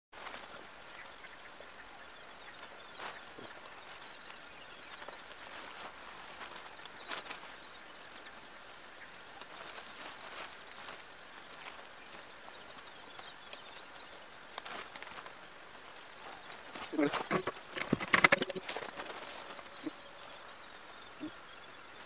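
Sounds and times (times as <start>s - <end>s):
nylon tent fabric rustling: 2.6s - 8.4s
faint high chirp: 16.2s - 22.0s
tent poles clicking: 16.7s - 20.0s.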